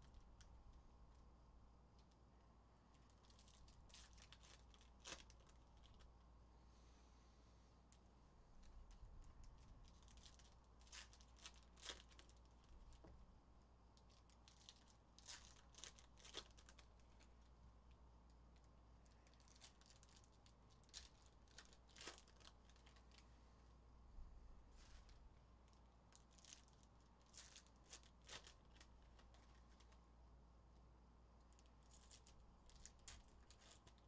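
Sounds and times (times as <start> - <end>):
foil wrappers tearing and crinkling: 3.1 - 6.0, 9.5 - 12.8, 14.1 - 17.3, 19.2 - 23.2, 26.1 - 30.0, 31.6 - 34.0.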